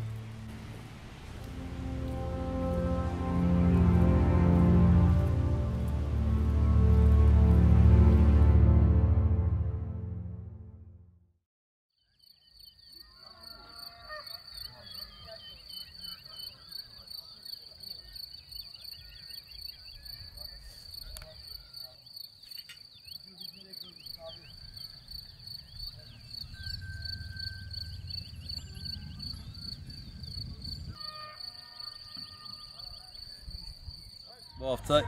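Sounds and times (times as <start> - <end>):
low rumble: 0.0 - 11.0, 25.2 - 31.0
small birds chirping: 12.0 - 31.2
crickets chirring: 12.2 - 35.0.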